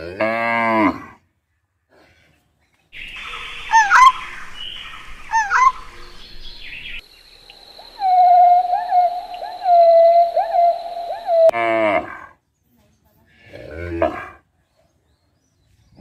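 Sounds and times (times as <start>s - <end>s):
bird chirps falling: 3.0s - 11.5s
bird whistle with upward flicks: 3.0s - 11.5s.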